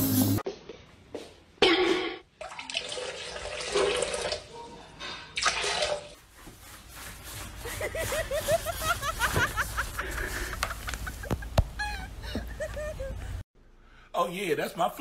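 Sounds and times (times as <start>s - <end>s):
water splashing in toilet bowl: 1.6s - 4.5s, 5.4s - 6.2s.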